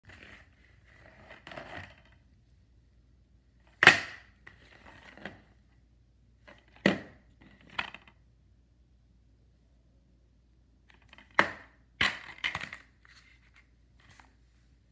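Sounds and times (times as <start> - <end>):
plastic cases rubbing and shuffling: 0.0 - 2.2
plastic case clacking on tiles: 10.9 - 12.9.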